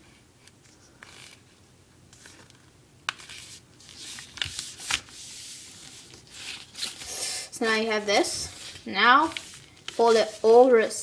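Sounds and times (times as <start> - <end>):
paper being folded: 2.1 - 10.6.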